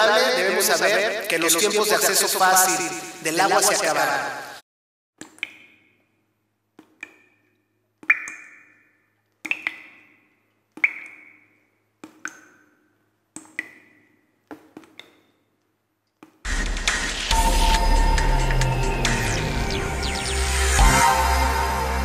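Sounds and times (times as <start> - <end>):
water drops plinking: 5.2 - 5.8, 6.8 - 12.7, 13.4 - 14.2.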